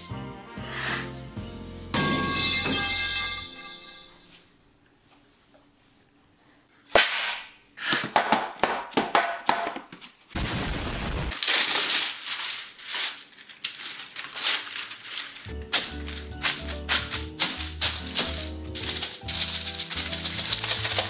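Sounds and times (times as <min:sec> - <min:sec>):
metal baking sheet clanking: 0:02.0 - 0:04.1, 0:14.5 - 0:21.0
wax paper rustling and crackling: 0:11.4 - 0:21.0.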